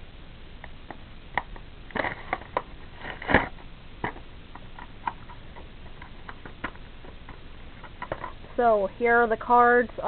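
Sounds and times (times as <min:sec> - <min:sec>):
plastic packaging crinkling: 0:01.9 - 0:08.5.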